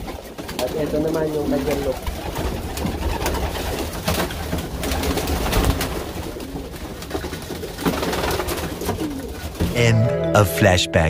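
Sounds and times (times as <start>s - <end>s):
pigeons cooing: 4.4s - 9.6s.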